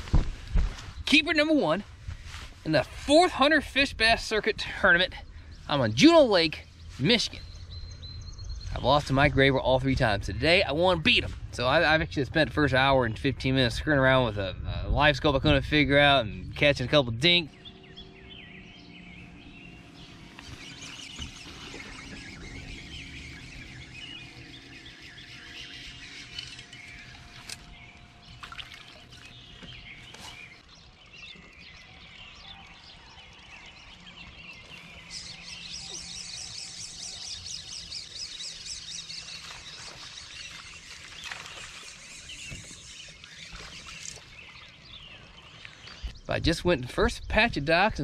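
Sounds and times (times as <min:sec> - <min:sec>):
birds chirping and singing: 0:00.7 - 0:48.0
faint steady hum: 0:15.9 - 0:46.2.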